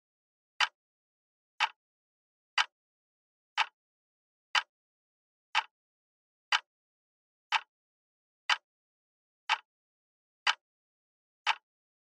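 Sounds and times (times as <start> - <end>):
clock ticking: 0.6 - 0.8, 2.6 - 2.8, 3.6 - 3.8, 5.5 - 5.7, 6.5 - 6.7, 7.5 - 7.7, 8.5 - 8.7, 9.5 - 9.7, 11.4 - 11.7.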